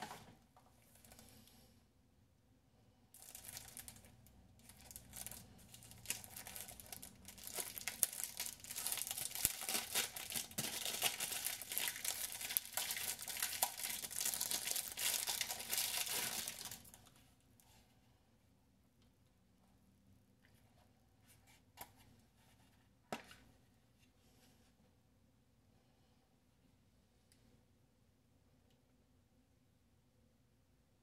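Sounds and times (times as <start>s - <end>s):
cellophane crinkling: 3.2s - 17.2s.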